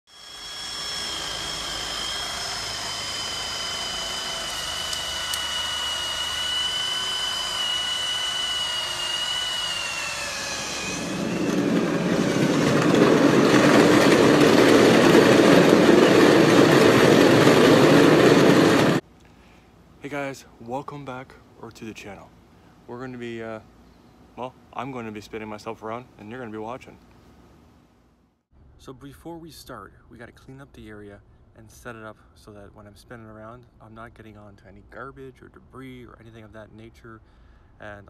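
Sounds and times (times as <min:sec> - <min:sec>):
angle grinder whining: 0:00.1 - 0:19.0
grinder wheel rushing against floor: 0:00.1 - 0:19.0.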